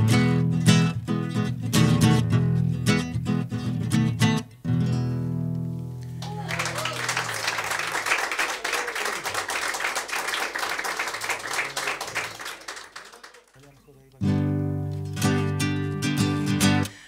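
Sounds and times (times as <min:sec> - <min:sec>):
clapping and applause: 0:06.0 - 0:14.3.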